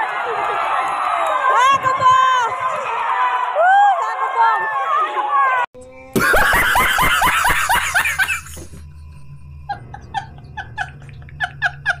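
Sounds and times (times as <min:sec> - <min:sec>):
man laughing: 0:06.2 - 0:08.8, 0:09.7 - 0:12.0.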